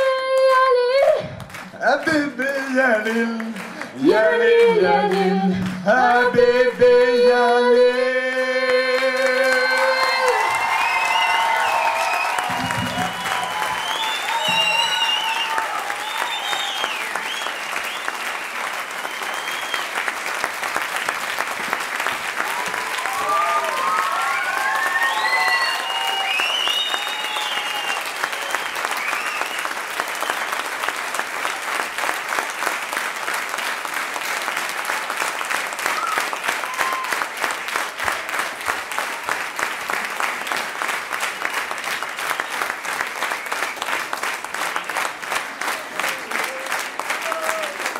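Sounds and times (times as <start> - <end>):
audience applauding: 0.0 - 6.3, 7.8 - 47.9
rhythmic clapping in unison: 0.0 - 47.9
high calls from crowd: 9.3 - 17.5.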